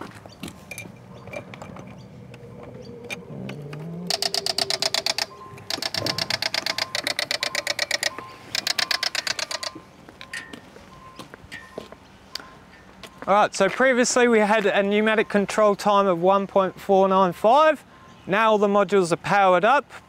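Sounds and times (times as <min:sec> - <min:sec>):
fast electronic clicking: 0:03.1 - 0:09.8.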